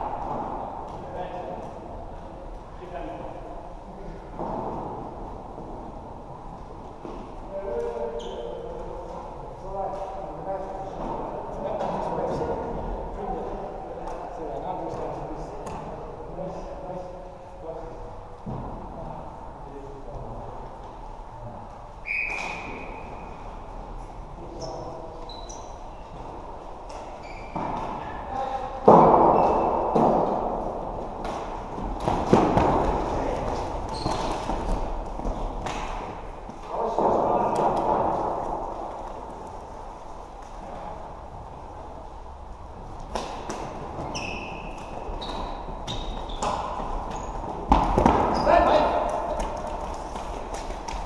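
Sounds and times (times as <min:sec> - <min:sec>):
sports hall din: 0:00.0 - 0:51.0
shoes squeaking on court floor: 0:07.8 - 0:08.8, 0:22.0 - 0:23.4, 0:24.5 - 0:26.3, 0:26.9 - 0:28.2, 0:29.3 - 0:29.9, 0:33.4 - 0:35.5, 0:43.6 - 0:50.1.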